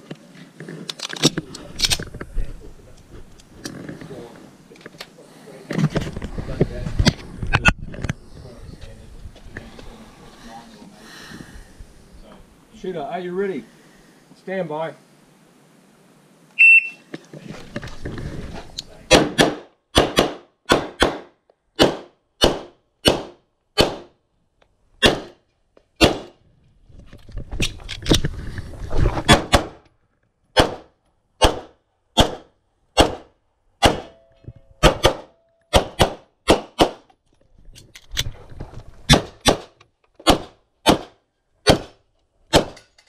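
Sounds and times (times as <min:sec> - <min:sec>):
pistol shots: 0:19.1 - 0:24.1, 0:25.0 - 0:25.4, 0:26.0 - 0:26.4, 0:30.6 - 0:34.2, 0:34.8 - 0:37.1, 0:39.1 - 0:42.8.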